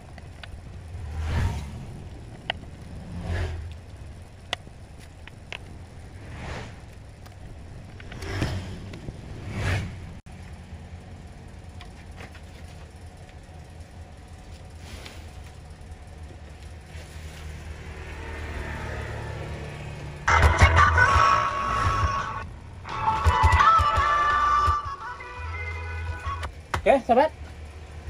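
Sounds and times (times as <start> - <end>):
low background hum: 0.0 - 18.6
vehicles passing whooshes: 0.0 - 28.0.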